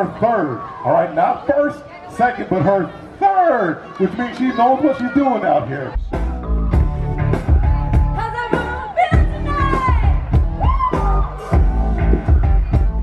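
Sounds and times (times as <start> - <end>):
pop backing track with drums: 6.0 - 13.0.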